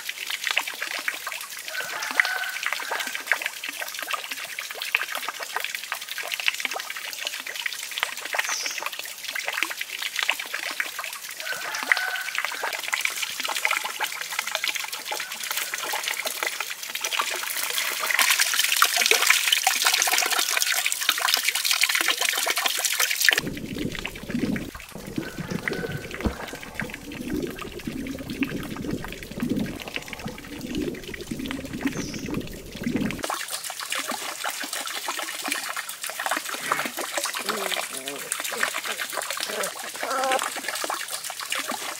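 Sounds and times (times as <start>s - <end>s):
water trickling into pond: 0.0s - 41.9s
fish splashing: 23.3s - 33.4s
underwater churn: 23.4s - 33.4s.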